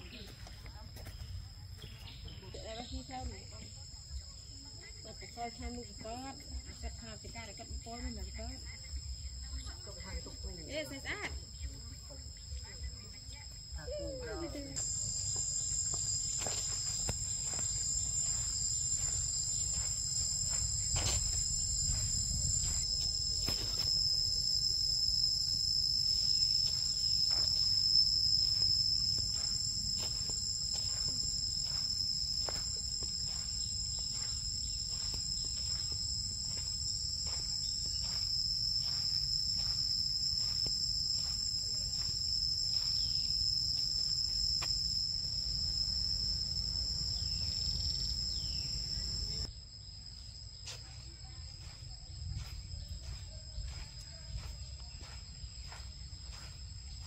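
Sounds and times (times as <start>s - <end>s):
insect chorus drone: 0.0s - 57.0s
footsteps on sandy path: 13.6s - 49.5s, 50.5s - 57.0s.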